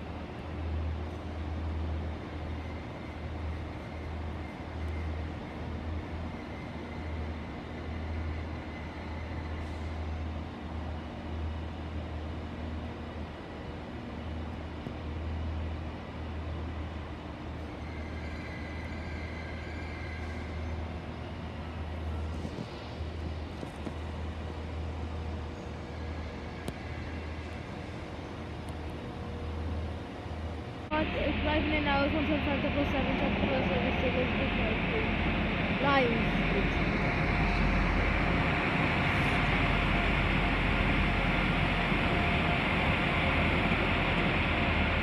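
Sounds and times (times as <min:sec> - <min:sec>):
trains rumbling: 0:00.0 - 0:45.0
faint high whine: 0:17.6 - 0:45.0.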